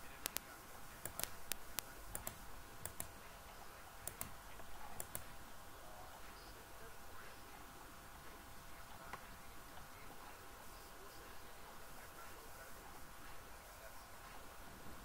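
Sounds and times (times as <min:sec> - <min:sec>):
faint steady hum: 0:00.0 - 0:15.0
computer mouse button clicking: 0:01.0 - 0:03.1, 0:04.0 - 0:04.4, 0:05.0 - 0:05.3.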